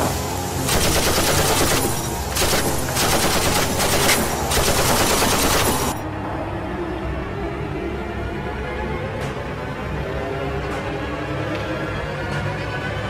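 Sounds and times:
automatic gunfire bursts: 0.7s - 6.0s.

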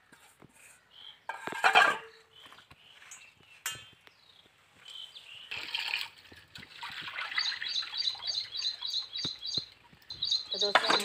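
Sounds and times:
bird chirping: 0.8s - 1.4s, 2.0s - 5.7s, 7.2s - 11.0s
water splashing and rubbing: 5.5s - 8.6s.

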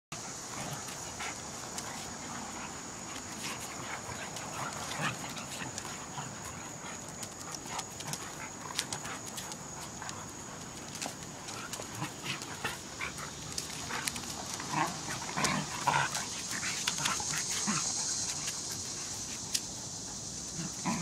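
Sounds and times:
dogs scuffling: 0.3s - 19.7s.

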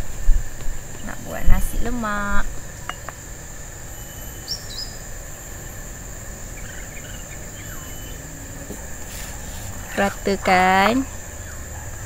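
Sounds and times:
insects droning: 0.0s - 12.0s
bird chirps: 3.9s - 12.0s.

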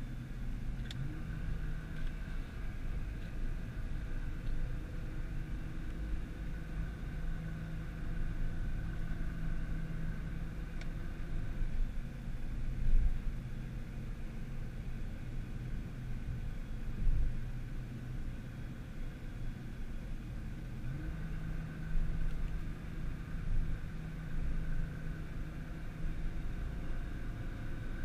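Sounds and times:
car engine and road rumble: 0.0s - 28.0s.

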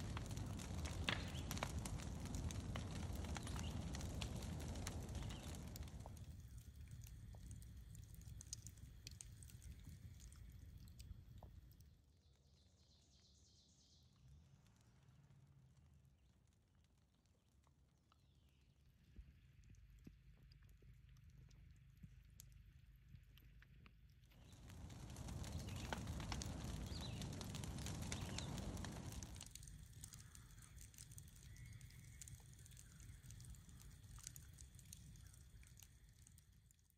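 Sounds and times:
low rumble: 0.0s - 7.9s, 24.4s - 30.3s
fire crackling and popping: 0.0s - 12.0s, 14.2s - 36.9s
brush pile crackling: 24.4s - 29.5s
faint high hiss: 24.4s - 36.4s.

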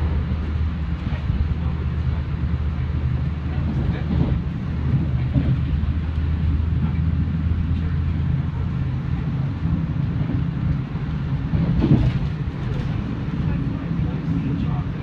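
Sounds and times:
train rumbling on tracks: 0.0s - 15.0s.

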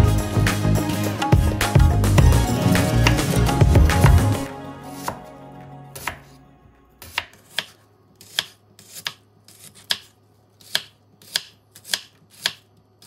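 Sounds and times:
knife slicing onion on board: 5.0s - 5.3s, 6.0s - 6.4s, 7.0s - 12.8s.

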